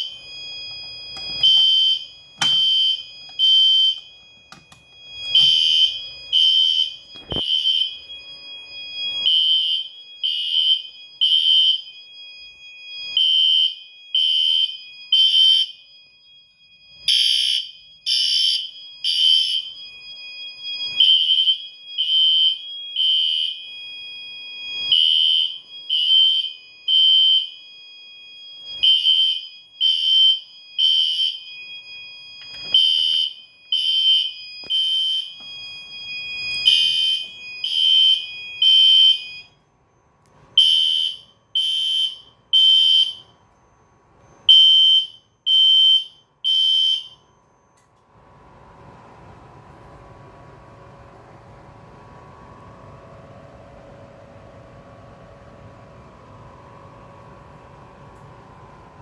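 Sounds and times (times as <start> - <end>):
fire alarm horn blasts: 0.0 - 39.6, 40.6 - 43.4, 44.2 - 47.8
steady alarm tone: 0.0 - 47.4.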